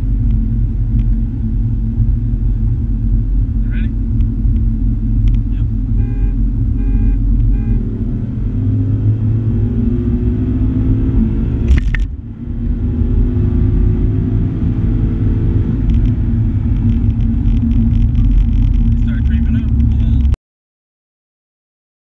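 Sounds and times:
car engine accelerating hard: 0.0 - 20.4
gear shift click: 11.7 - 12.2.

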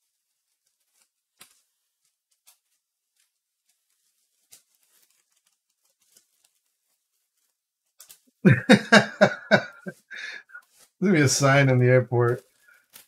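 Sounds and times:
man laughing: 8.5 - 11.6.

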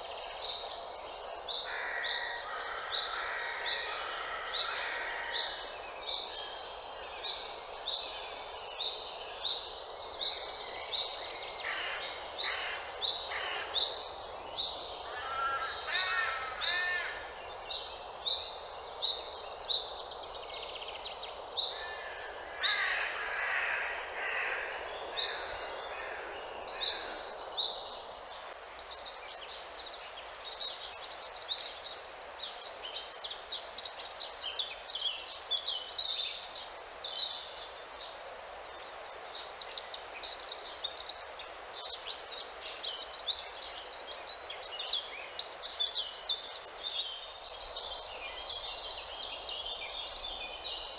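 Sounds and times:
background hiss: 0.0 - 50.9
crow cawing: 1.7 - 5.5, 11.6 - 13.8, 15.0 - 17.3, 22.5 - 27.2.

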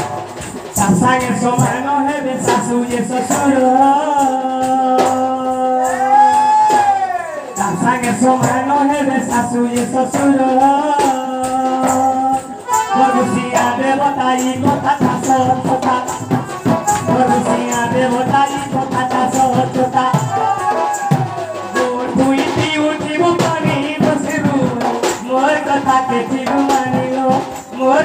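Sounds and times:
barrel drum beaten: 0.0 - 28.0
jingling percussion: 0.0 - 28.0
folk melody: 12.6 - 14.8.

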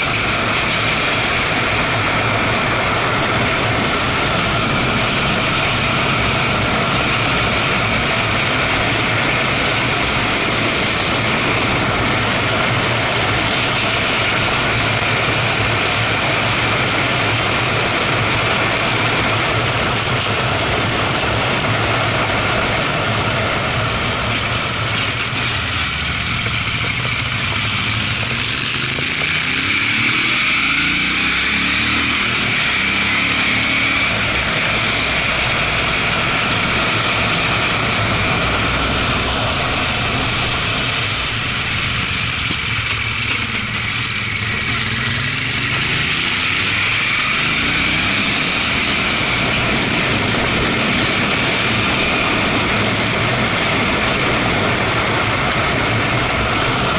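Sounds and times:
motorcycle engine running under load: 0.0 - 56.9
wind noise on microphone: 46.7 - 56.9.

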